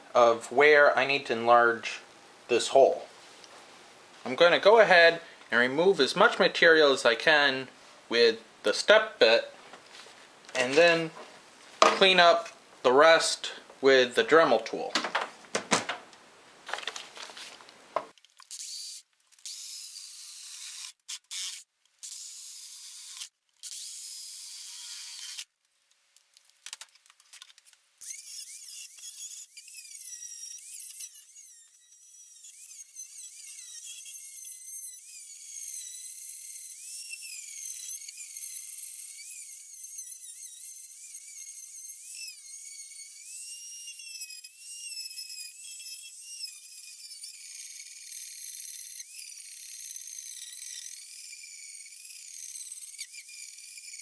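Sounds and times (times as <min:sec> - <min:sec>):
rotary tool grinding metal: 0:18.4 - 0:25.5, 0:28.0 - 0:54.0.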